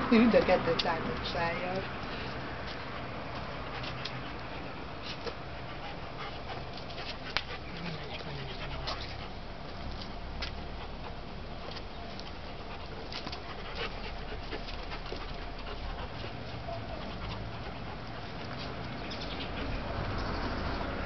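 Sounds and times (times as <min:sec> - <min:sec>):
dogs play-fighting: 0:01.6 - 0:21.0.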